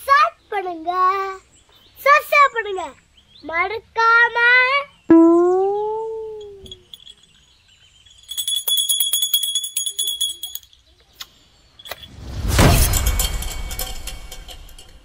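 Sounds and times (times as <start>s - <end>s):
bell-like jingle with clicks: 6.3s - 11.1s, 11.8s - 12.4s
loud whoosh: 12.0s - 15.0s.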